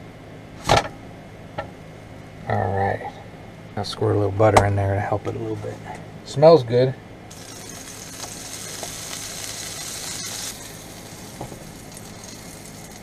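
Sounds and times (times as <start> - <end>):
sandwich sizzling in a frying pan: 7.3 - 13.0.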